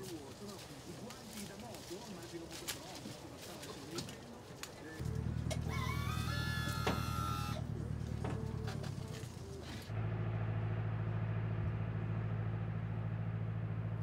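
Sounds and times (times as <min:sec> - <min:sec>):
engine humming steadily: 0:04.9 - 0:14.0.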